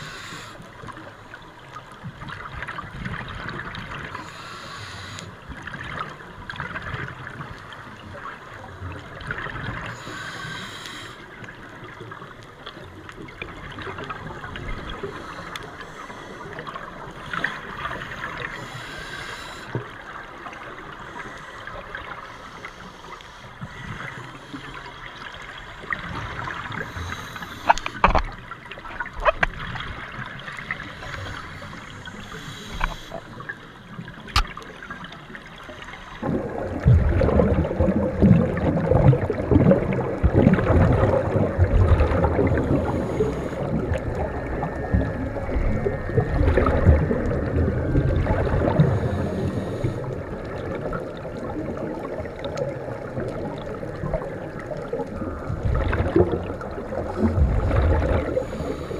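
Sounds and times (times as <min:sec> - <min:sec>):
steady crackling hiss: 0:00.0 - 0:02.3, 0:03.7 - 0:06.4, 0:07.4 - 0:37.3, 0:38.4 - 0:58.9
diver's exhaled bubbles gurgling: 0:36.1 - 0:58.9.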